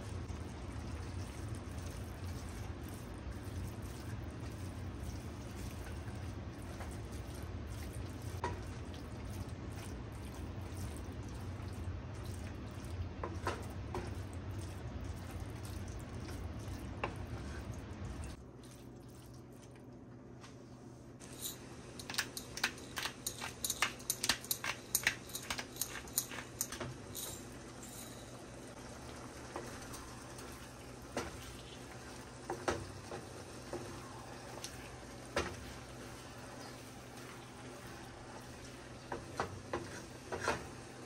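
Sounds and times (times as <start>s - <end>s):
meat and onion frying: 28.5s - 41.0s
wooden spatula scraping a pan: 39.2s - 40.8s.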